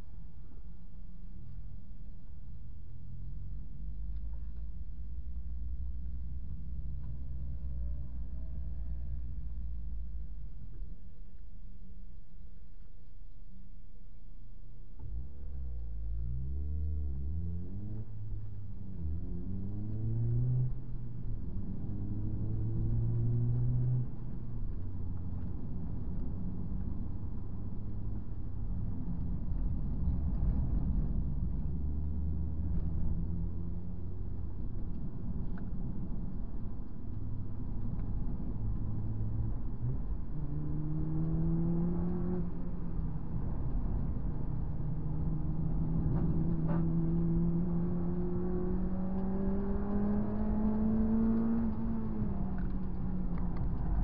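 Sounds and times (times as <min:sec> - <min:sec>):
road and tyre rumble: 0:00.0 - 0:54.0
car engine accelerating: 0:14.9 - 0:54.0.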